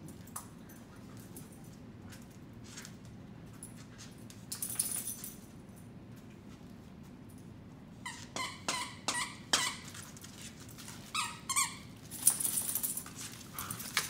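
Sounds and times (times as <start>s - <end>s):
dogs scuffling: 0.0s - 5.6s, 9.8s - 14.0s
squeaky dog toy squeaking: 8.0s - 10.0s, 11.1s - 11.9s.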